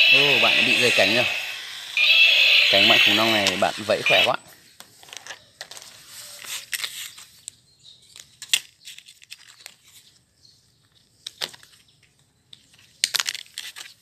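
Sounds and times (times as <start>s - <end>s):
toy wings plastic rustling and clicking: 8.2s - 10.0s, 12.6s - 14.0s.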